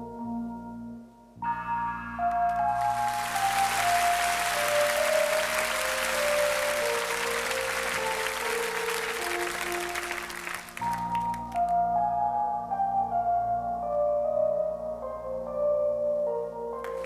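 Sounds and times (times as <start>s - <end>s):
slow instrumental stage music: 0.0s - 17.0s
audience applauding: 2.3s - 11.8s.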